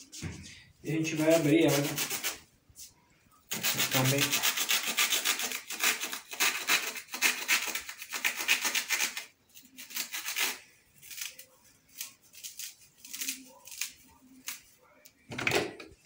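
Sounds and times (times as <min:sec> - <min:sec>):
knife cutting dry loofah: 0:03.5 - 0:14.7.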